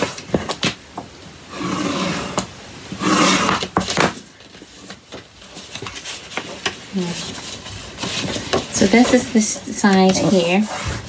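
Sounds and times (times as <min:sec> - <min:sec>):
paper scraping swishes: 0:01.6 - 0:11.0
paper rustling: 0:03.0 - 0:11.0.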